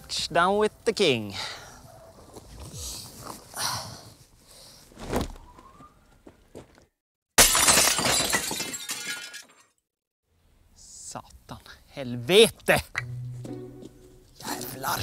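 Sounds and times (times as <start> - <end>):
glass window smashing: 7.4 - 9.7.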